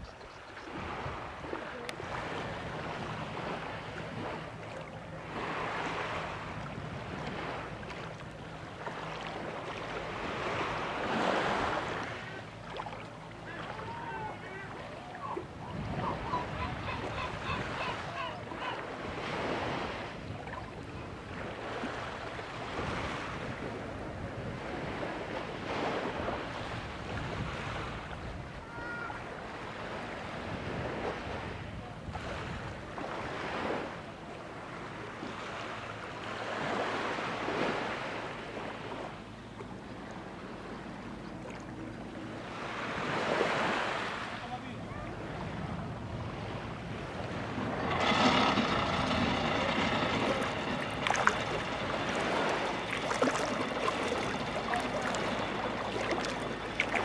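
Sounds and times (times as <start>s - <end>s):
wind buffeting microphone: 0.0s - 12.7s, 13.4s - 34.0s, 44.8s - 57.0s
small waves washing onto beach: 0.0s - 57.0s.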